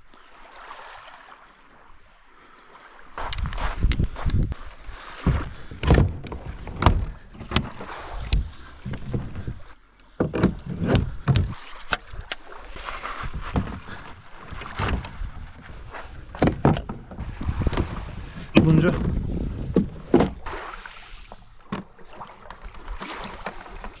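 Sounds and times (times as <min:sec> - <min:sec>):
plastic kayak knocks and thuds: 0:05.2 - 0:12.0, 0:13.2 - 0:20.6, 0:21.6 - 0:24.0.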